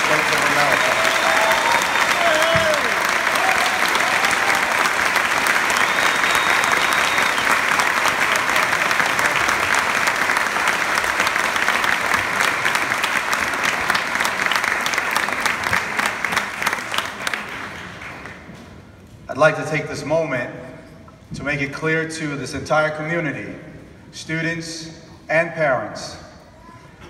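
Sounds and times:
large audience applauding: 0.0 - 18.5.

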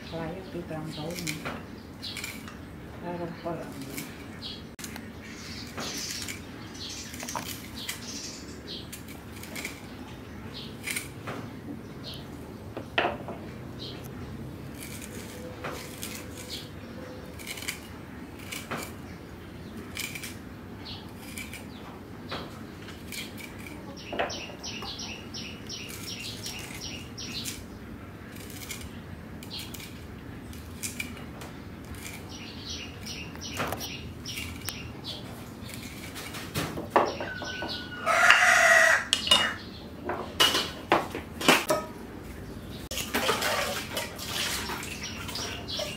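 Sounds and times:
cleaver knocking and scraping papaya: 14.4 - 19.0.

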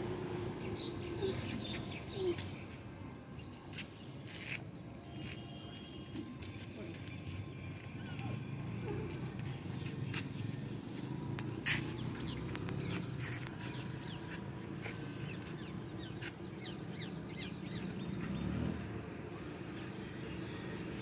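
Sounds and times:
small birds chirping: 8.0 - 19.8.

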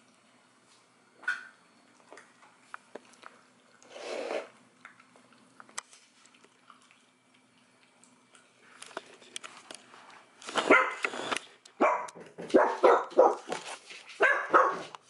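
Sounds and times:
dog barking: 10.7 - 11.0, 11.8 - 13.5, 14.2 - 14.9.

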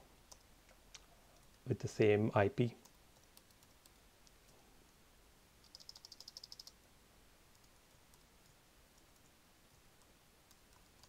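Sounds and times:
computer keyboard typing: 2.8 - 4.4, 5.6 - 6.8, 10.5 - 11.0.

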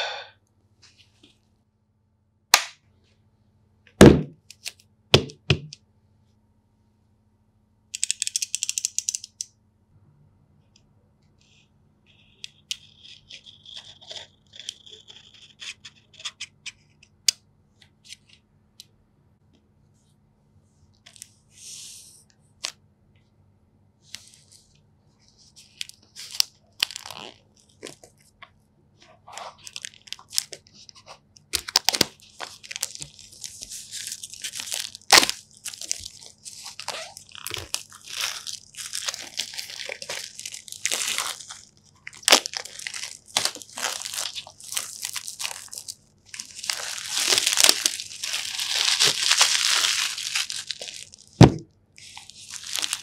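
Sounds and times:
plastic film crinkling: 25.4 - 28.3, 29.1 - 53.0.

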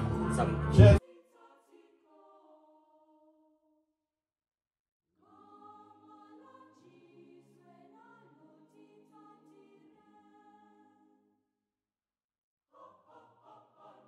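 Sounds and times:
choir singing held chords: 0.0 - 2.7, 5.2 - 10.9, 12.8 - 14.0.

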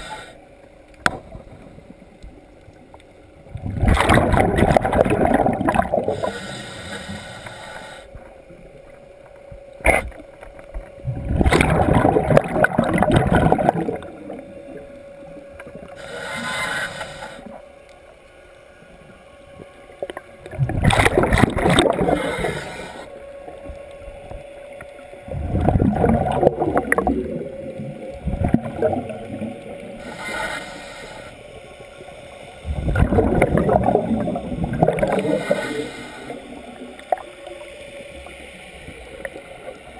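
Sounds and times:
regulator hissing inhalations: 0.0 - 0.4, 6.1 - 8.2, 15.9 - 17.7, 22.0 - 23.2, 30.0 - 31.6, 35.1 - 36.6
exhaled air bubbles gurgling: 3.5 - 6.6, 11.0 - 16.5, 19.6 - 23.0, 25.2 - 30.1, 32.6 - 37.6.

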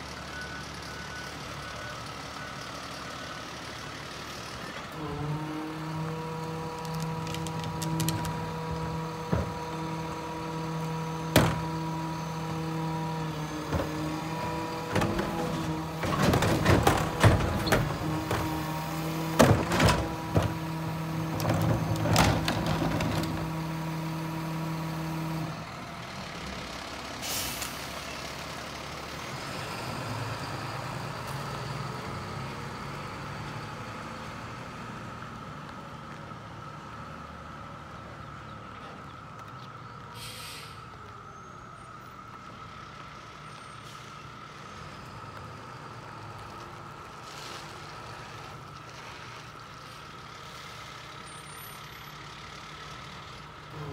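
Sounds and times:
garbage truck engine and hydraulics: 0.0 - 53.9
cart knocking down: 14.8 - 18.5, 19.3 - 23.6
air brakes hissing: 27.2 - 27.9, 40.1 - 41.0.

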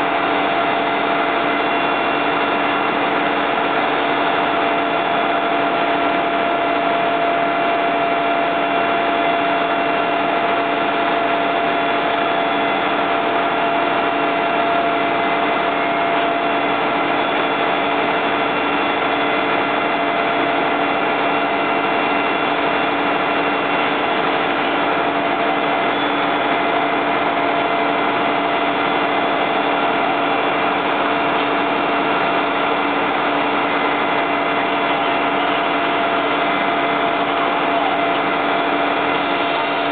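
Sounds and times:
fire engine drone and whine: 0.0 - 39.9.

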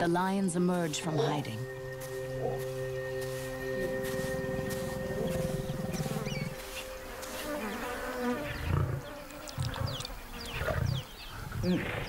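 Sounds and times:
small birds chirping: 0.0 - 12.0
lion growling: 8.5 - 12.0.

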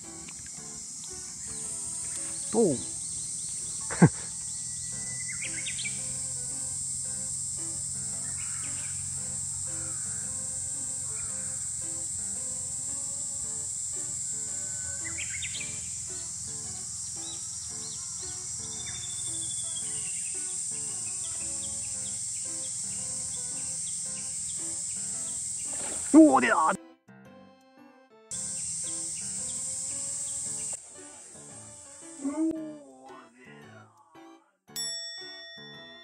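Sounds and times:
high insect drone: 0.0 - 26.8, 28.3 - 33.2
light background music: 0.0 - 36.0
bird chirps: 0.2 - 6.5, 8.0 - 12.6, 14.1 - 26.8, 28.3 - 30.8.

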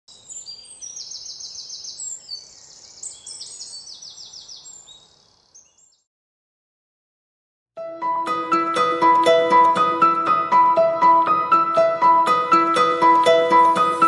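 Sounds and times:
faint outdoor hiss: 0.1 - 5.9
birds singing and chirping: 0.1 - 6.1.

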